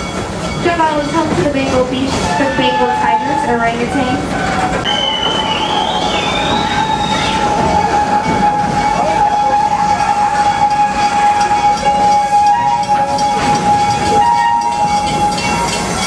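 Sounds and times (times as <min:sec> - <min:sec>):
train rolling on track: 0:00.0 - 0:16.0
wheel squeal: 0:04.5 - 0:16.0.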